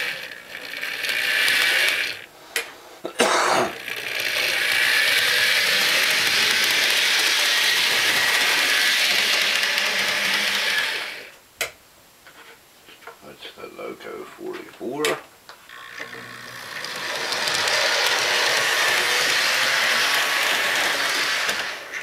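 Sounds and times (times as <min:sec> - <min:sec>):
model train motor whirring: 0:00.0 - 0:02.3, 0:03.7 - 0:11.3, 0:15.7 - 0:22.0.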